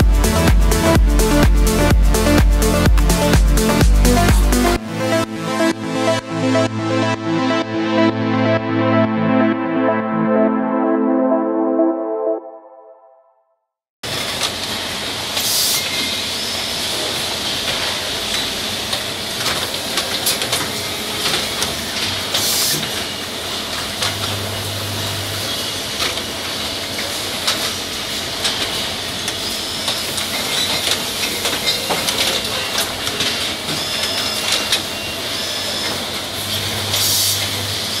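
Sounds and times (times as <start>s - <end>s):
steady machine din: 0.0s - 10.8s, 36.4s - 38.0s
low hum: 0.0s - 13.2s
pneumatic actuators clicking and hissing: 15.4s - 16.2s, 16.9s - 23.1s, 27.0s - 38.0s.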